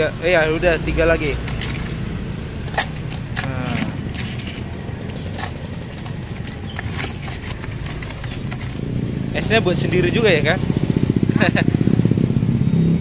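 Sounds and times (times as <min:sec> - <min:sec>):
street traffic rumble: 0:00.0 - 0:13.0
ladle scooping crushed ice: 0:01.2 - 0:08.8.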